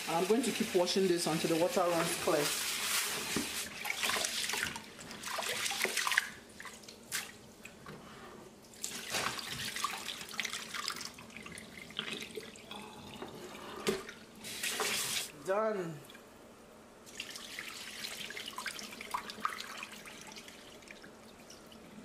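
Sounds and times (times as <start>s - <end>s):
tap water running: 0.0s - 6.4s, 8.8s - 15.3s
rinse water poured into sink: 13.8s - 15.3s.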